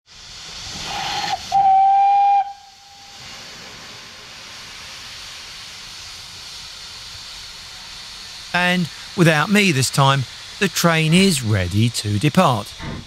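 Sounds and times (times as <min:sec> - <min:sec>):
steam hissing: 0:00.0 - 0:13.0
steam locomotive whistle: 0:00.7 - 0:03.4.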